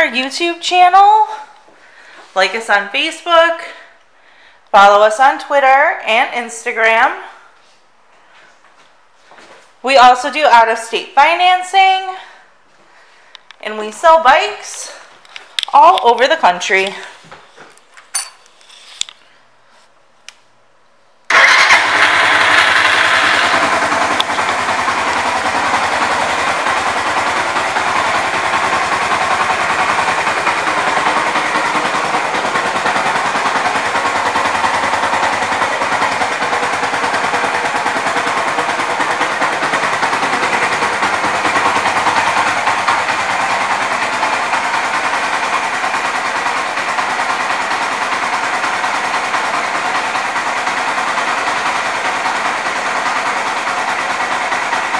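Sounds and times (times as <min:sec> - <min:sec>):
motorcycle engine starting and idling: 0:21.3 - 0:54.9.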